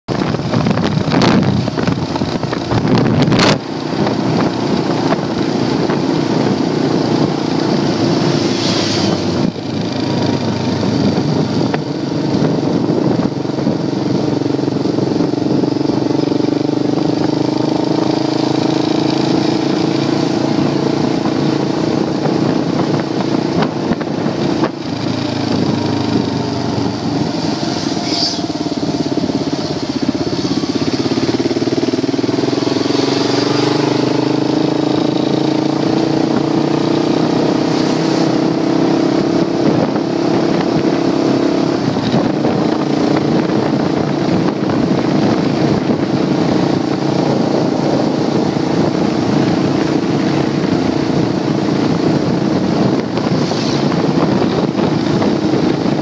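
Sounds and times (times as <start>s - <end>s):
wind and road noise: 0.0s - 56.0s
vehicle engine running: 0.1s - 40.9s.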